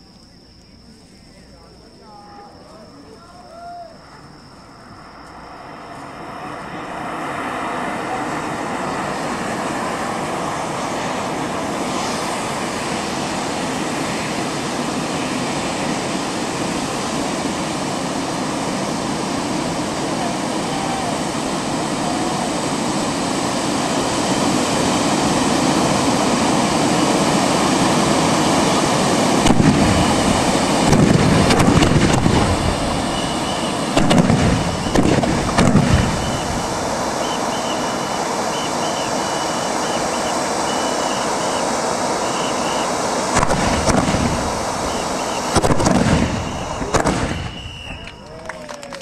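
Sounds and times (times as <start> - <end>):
fireworks rushing hiss: 1.0 - 48.3
sharp firework cracks: 29.4 - 38.0, 43.3 - 48.2.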